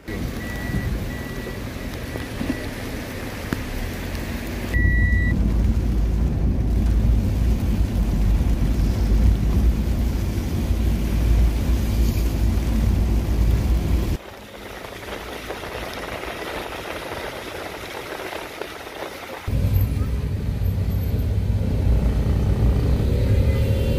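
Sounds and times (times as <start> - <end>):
car driving on wet road: 0.0 - 23.9
short beep: 4.8 - 5.4.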